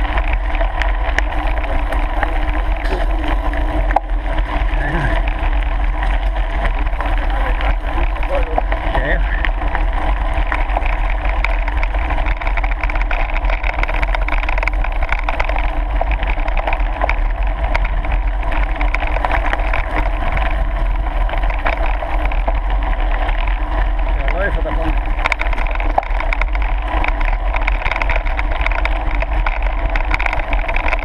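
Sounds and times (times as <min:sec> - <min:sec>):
bike tyres on gravel: 0:00.0 - 0:31.0
wind rumble on microphone: 0:00.0 - 0:31.0.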